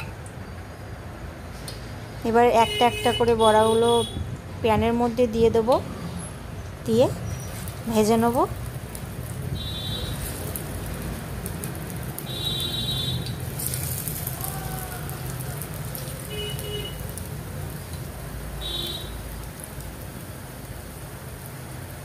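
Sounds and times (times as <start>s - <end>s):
fritters sizzling in oil: 6.4s - 22.0s.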